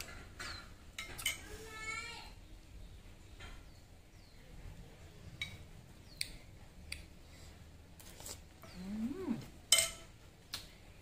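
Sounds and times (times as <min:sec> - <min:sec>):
person humming: 0:08.6 - 0:09.5.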